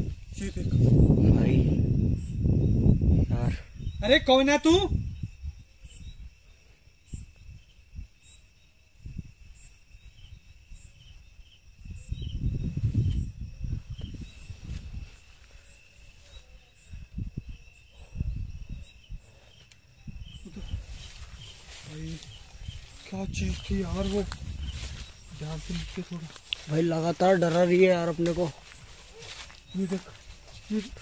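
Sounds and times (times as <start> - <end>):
cricket chirp: 0.0 - 31.0
crickets trilling: 0.0 - 31.0
low rumbling noise: 20.3 - 31.0
low thumps: 22.2 - 26.8.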